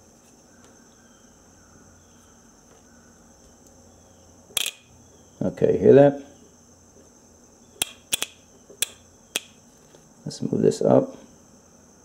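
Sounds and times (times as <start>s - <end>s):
solenoid valve clicking: 7.8s - 9.6s.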